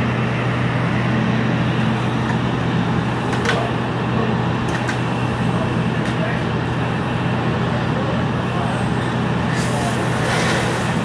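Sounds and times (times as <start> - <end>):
diesel pump engine droning: 0.0 - 11.0
hose spraying water: 9.5 - 11.0.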